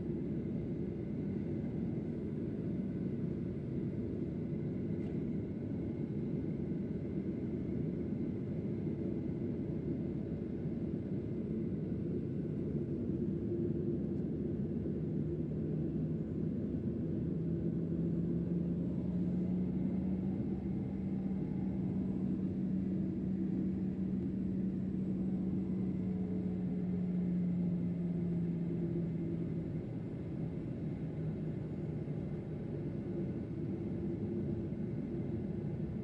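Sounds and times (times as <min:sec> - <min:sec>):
airplane engine hum: 0:00.0 - 0:36.0
airflow rumble: 0:08.2 - 0:36.0.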